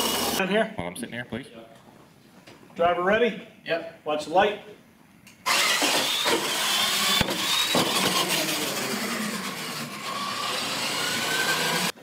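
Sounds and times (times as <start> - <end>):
toy truck motor and gears whining: 0.0 - 0.4, 5.4 - 12.0
tyres rolling over floor: 5.5 - 11.9.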